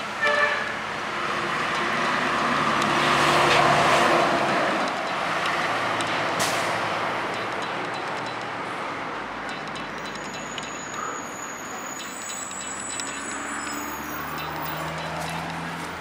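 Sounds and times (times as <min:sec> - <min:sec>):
road traffic noise: 0:00.0 - 0:16.0
thin high-pitched tones: 0:09.5 - 0:15.4.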